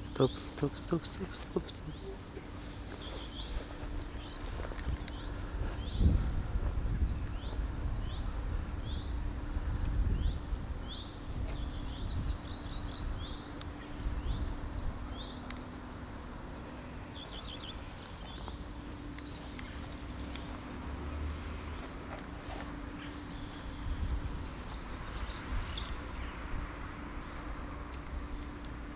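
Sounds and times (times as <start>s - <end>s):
low outdoor background hum: 0.0s - 28.9s
small bird chirping: 6.9s - 28.9s.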